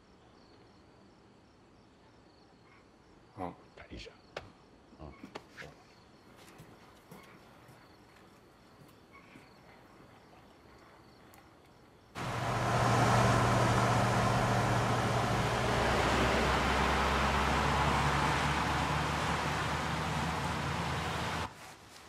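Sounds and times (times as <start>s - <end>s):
faint insect chirping: 0.0s - 14.7s
fire engine drone: 12.2s - 21.5s
tyre hiss on wet road: 12.2s - 22.0s.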